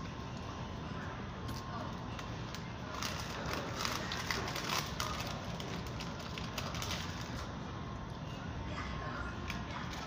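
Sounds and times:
low background hum: 0:00.0 - 0:10.0
paper wrapper crinkling: 0:02.2 - 0:07.5.

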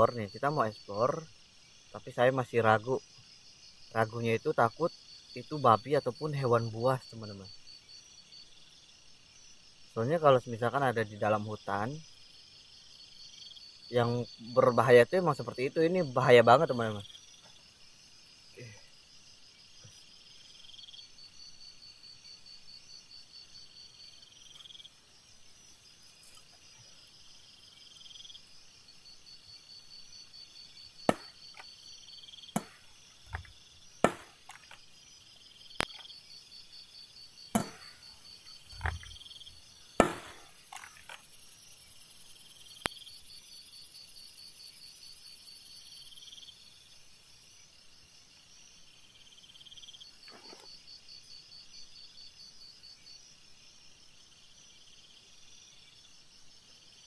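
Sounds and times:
insects trilling: 0:00.0 - 0:57.0
sharp knocks: 0:31.1 - 0:31.6, 0:32.6 - 0:34.8, 0:37.5 - 0:38.0, 0:40.0 - 0:40.6.

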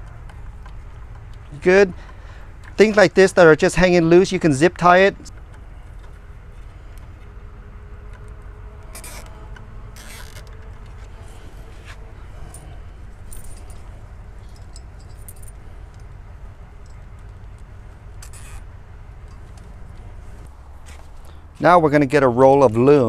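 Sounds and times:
low steady hum: 0:00.0 - 0:23.0
wiring and plastic parts rattling: 0:08.0 - 0:20.5.

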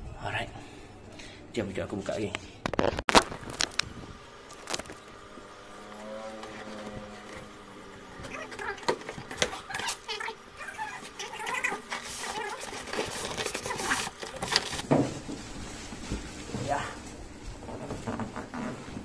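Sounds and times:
cardboard crackling and scraping: 0:02.7 - 0:19.0
cardboard squeak: 0:08.2 - 0:14.8.

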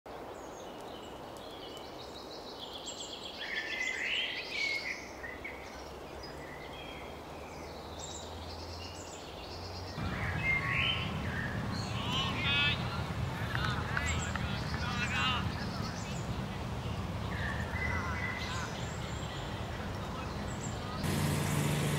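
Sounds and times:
birds chirping and calling: 0:07.5 - 0:21.9
low rumble: 0:10.0 - 0:17.8
steady background hiss: 0:10.0 - 0:21.9.

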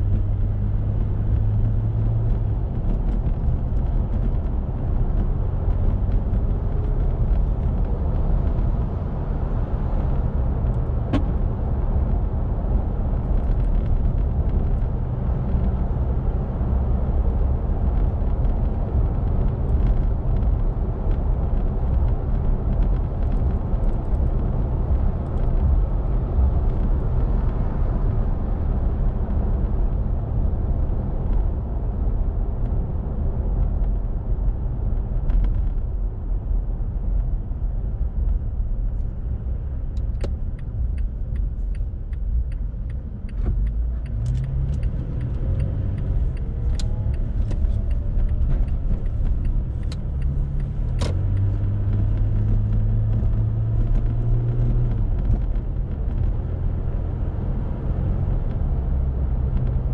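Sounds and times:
car engine and tyre rumble: 0:00.0 - 0:59.9
light clicks and ticks: 0:39.9 - 0:56.3.

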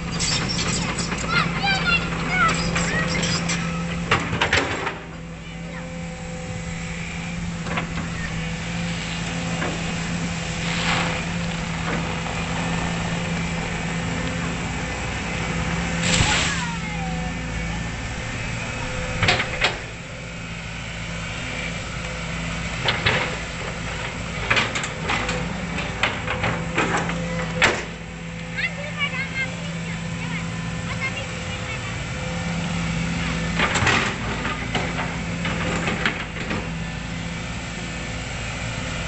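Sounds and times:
excavator diesel engine running: 0:00.0 - 0:39.0
sharp knocks and clanks: 0:00.2 - 0:05.1.

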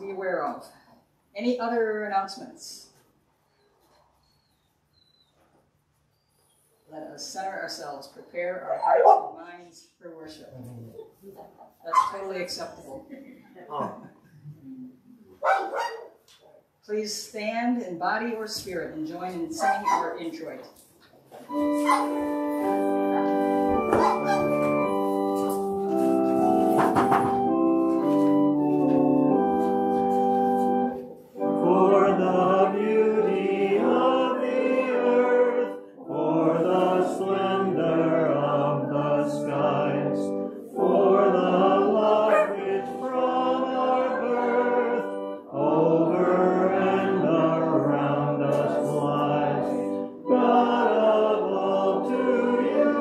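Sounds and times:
congregation singing a hymn: 0:21.5 - 0:53.0
organ playing chords: 0:21.5 - 0:53.0.

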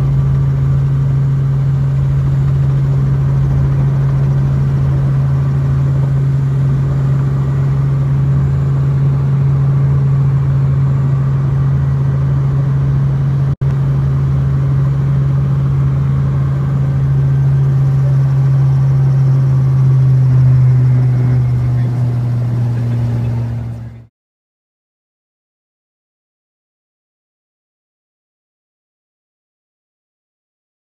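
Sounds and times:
helicopter engine and rotors drone: 0:00.0 - 0:24.1.

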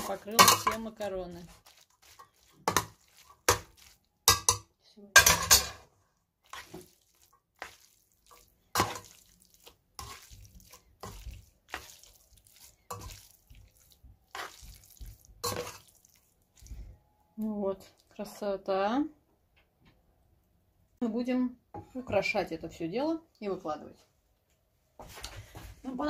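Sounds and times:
utensil clattering on metal pot: 0:00.0 - 0:01.0, 0:04.3 - 0:05.8
wet squelching of pasta: 0:00.0 - 0:04.4, 0:06.2 - 0:17.1.

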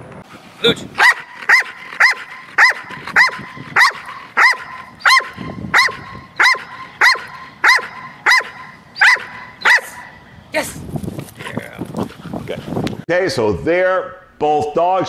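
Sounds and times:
dog barking sharply: 0:01.0 - 0:10.2.

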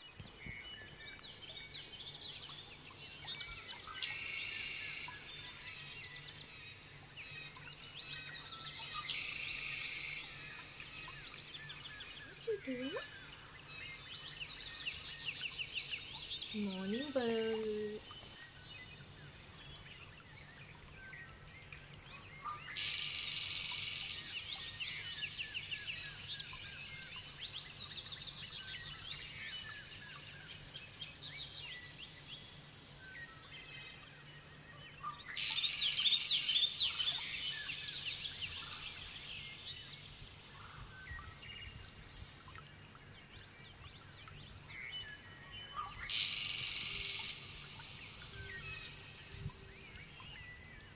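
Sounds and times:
lovebirds chirping and chattering: 0:16.5 - 0:18.4.

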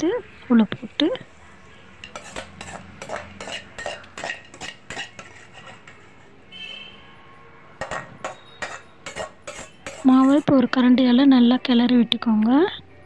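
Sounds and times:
metal ladle scraping a pan: 0:02.0 - 0:06.3, 0:07.8 - 0:10.5
high metallic ring: 0:08.1 - 0:09.9.

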